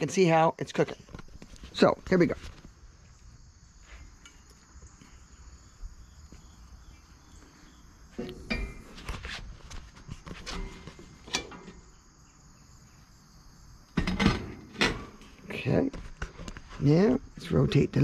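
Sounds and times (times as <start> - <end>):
insects humming: 0.0 - 18.0
metal knocks and clanks: 8.2 - 9.3, 10.4 - 11.9, 14.0 - 15.3.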